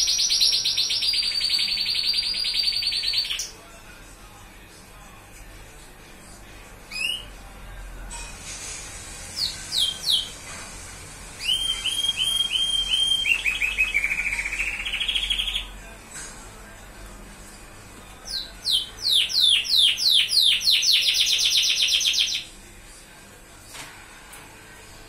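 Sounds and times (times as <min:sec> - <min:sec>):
canary singing trills: 0:00.0 - 0:03.6, 0:06.9 - 0:07.4, 0:09.4 - 0:10.4, 0:11.4 - 0:15.8, 0:18.2 - 0:22.5.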